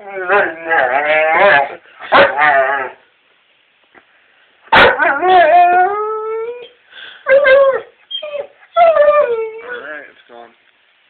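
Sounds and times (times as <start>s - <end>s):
dog whining and howling: 0.0s - 3.0s, 4.8s - 10.1s.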